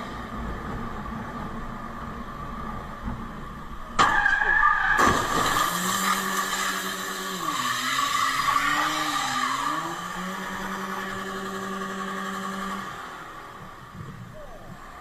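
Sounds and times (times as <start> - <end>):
tyre squealing: 4.0 - 11.9
van engine revving: 4.9 - 15.0.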